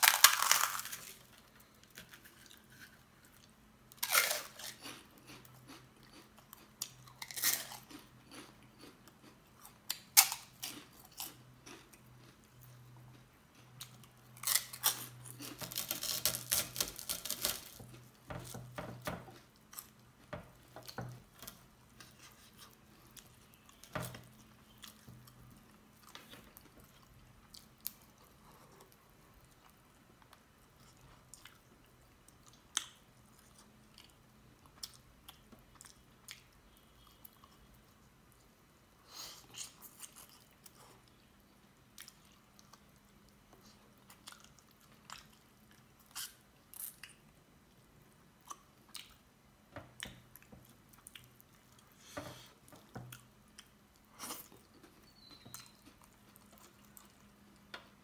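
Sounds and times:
man chewing and smacking: 4.8 - 14.6, 41.9 - 47.2, 50.0 - 52.0, 52.7 - 58.0.

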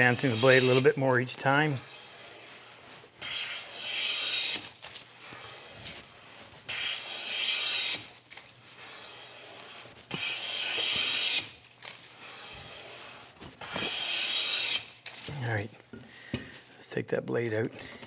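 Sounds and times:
hand plane cutting wood: 0.0 - 8.2, 8.8 - 15.0.

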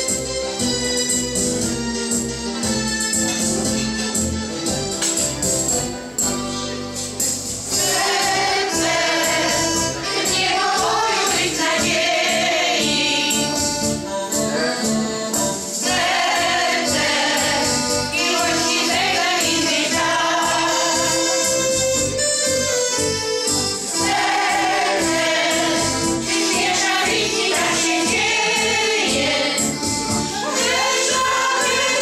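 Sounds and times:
instrumental backing with beat: 0.0 - 32.0
choir singing: 7.7 - 21.4, 23.9 - 32.0.

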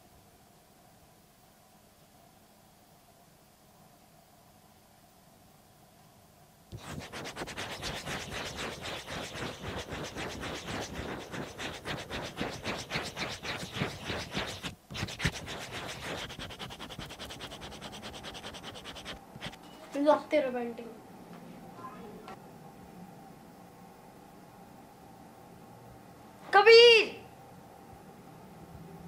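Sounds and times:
pencil scratching on paper: 6.7 - 19.6.

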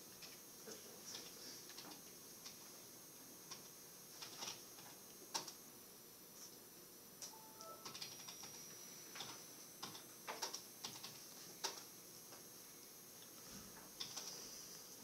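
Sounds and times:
computer keyboard typing: 1.1 - 2.6, 3.5 - 5.6, 7.2 - 8.6, 9.2 - 11.9, 14.0 - 14.4.

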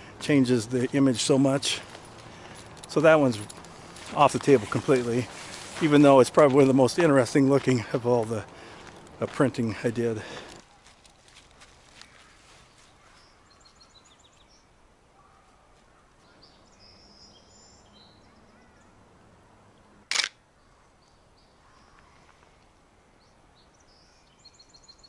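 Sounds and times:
camera shutter click: 20.1 - 20.4.

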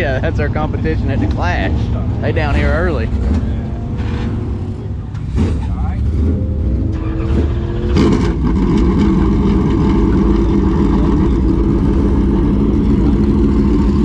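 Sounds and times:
race car engine idling: 0.0 - 14.0.

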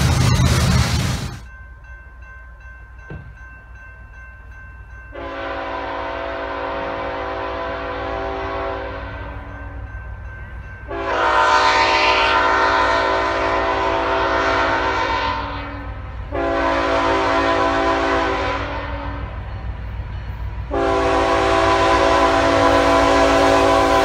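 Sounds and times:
locomotive air horn blasts: 5.2 - 9.5, 10.9 - 19.4, 20.7 - 24.0.

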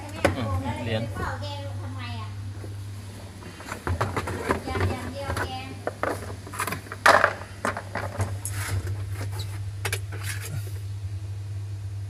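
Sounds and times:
steady low hum: 0.0 - 12.0
knocks and scrapes in washer tub: 3.5 - 9.4.

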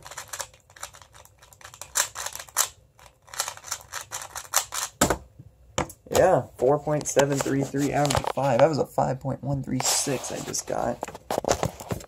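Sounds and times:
puzzle cube plastic clicks: 0.0 - 5.0.

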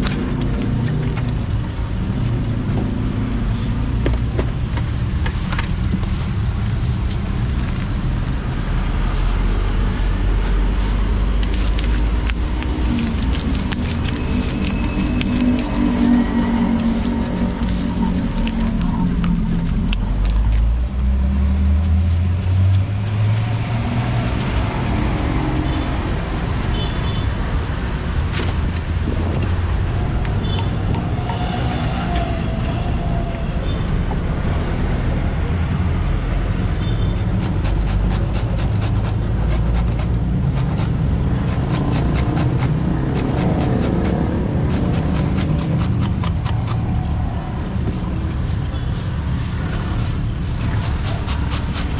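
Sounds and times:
road traffic engine rumble: 0.0 - 51.9
stone pestle grinding in mortar: 11.2 - 20.5, 37.2 - 47.4, 49.2 - 51.9.

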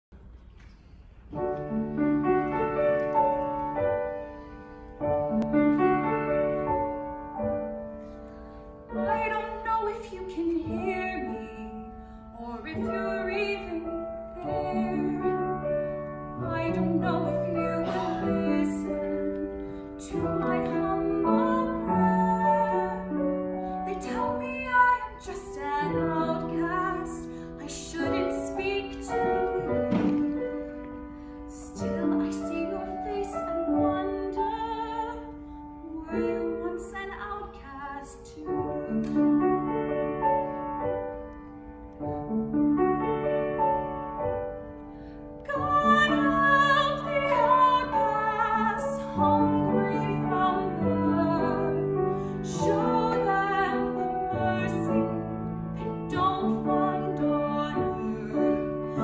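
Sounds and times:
piano chords: 1.2 - 59.0
woman singing with vibrato: 20.0 - 23.2, 45.5 - 59.0.

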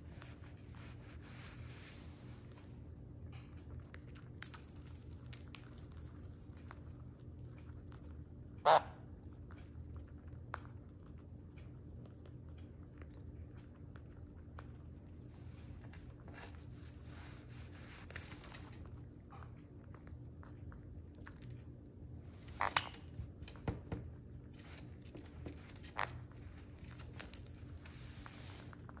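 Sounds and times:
parrot cracking seeds: 2.4 - 11.4, 17.0 - 29.0.

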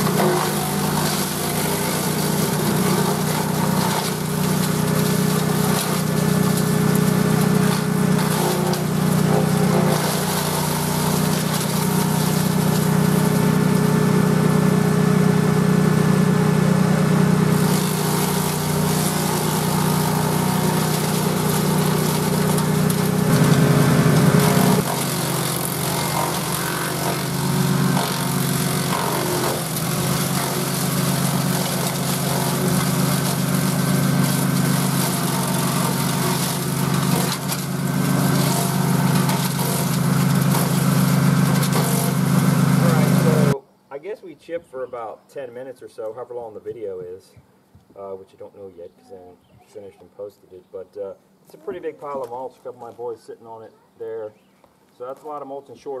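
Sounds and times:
chipper shredder engine running: 0.0 - 43.6.

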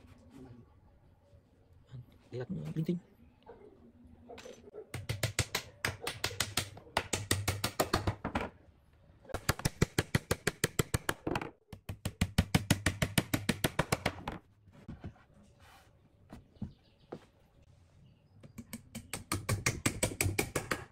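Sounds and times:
hammer striking nails into wood: 4.9 - 8.5, 9.4 - 14.4, 18.6 - 20.9.

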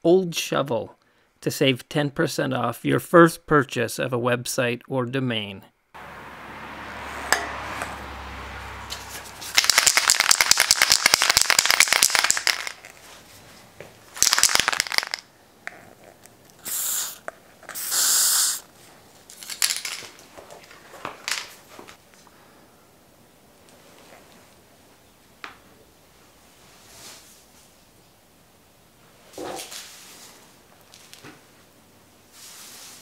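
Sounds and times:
spray can ball rattling: 8.9 - 13.0, 14.2 - 15.3, 16.6 - 18.6, 19.3 - 20.2
spray paint hissing: 16.6 - 18.7.

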